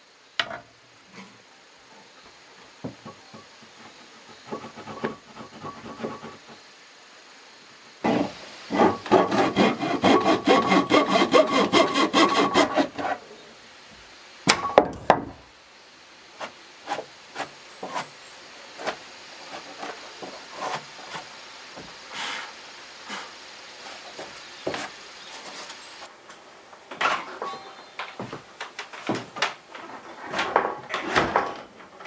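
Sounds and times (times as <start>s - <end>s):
hand saw cutting wood: 4.3s - 6.5s, 8.0s - 13.2s, 18.8s - 21.3s.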